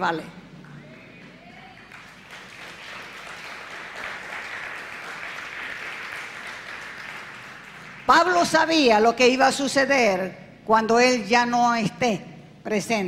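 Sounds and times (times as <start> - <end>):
crowd applauding: 0.6 - 8.4.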